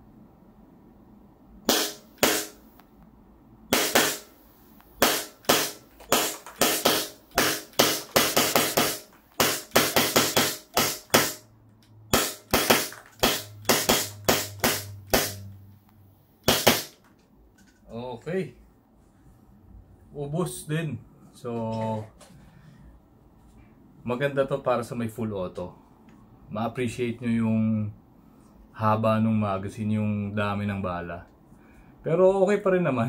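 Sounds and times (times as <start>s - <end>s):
airsoft pistol shots cracking: 1.7s - 2.6s, 3.7s - 4.3s, 5.0s - 11.4s, 12.1s - 15.4s, 16.4s - 17.0s.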